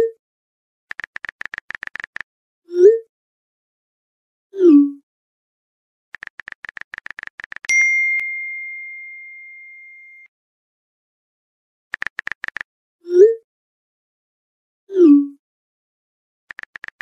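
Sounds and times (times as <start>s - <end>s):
keyboard taps: 0.9s - 2.2s, 6.2s - 7.7s, 11.9s - 12.6s, 16.5s - 17.0s
notification ding: 7.7s - 10.0s.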